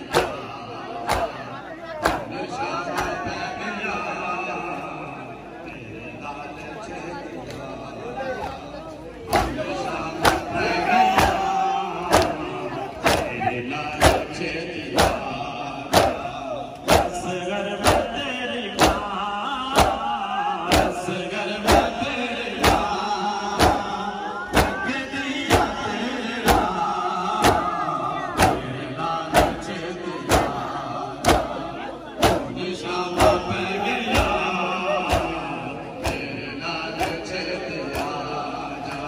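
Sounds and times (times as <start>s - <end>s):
men singing: 0.0s - 39.0s
hands slapping chests: 2.0s - 2.3s, 12.1s - 12.4s, 13.0s - 13.3s.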